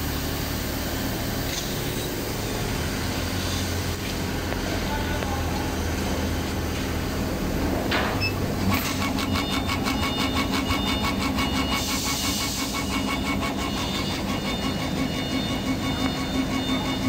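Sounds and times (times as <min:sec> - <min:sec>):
stepper motors pulsing whine: 0:00.0 - 0:17.0.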